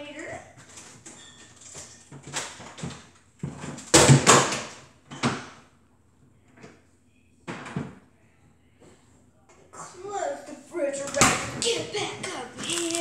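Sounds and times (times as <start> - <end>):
items knocking in refrigerator: 2.1 - 5.6.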